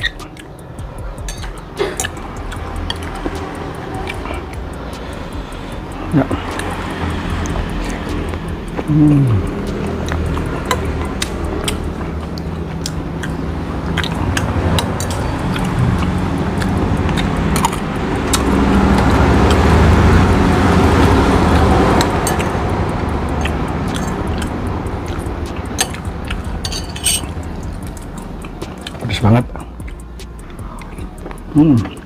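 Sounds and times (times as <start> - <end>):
low rumble: 15.4 - 17.1
cutlery clinking on ceramic bowl: 26.7 - 27.3.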